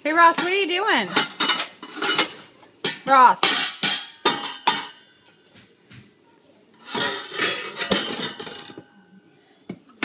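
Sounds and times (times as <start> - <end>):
utensil banging on metal pots: 0.0 - 5.2, 6.9 - 8.9.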